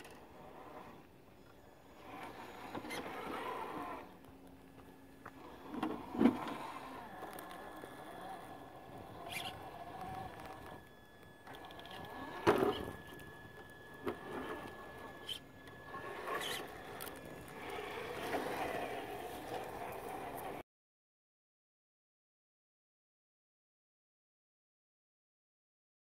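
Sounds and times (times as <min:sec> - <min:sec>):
rc truck motor whining: 0:00.0 - 0:20.6.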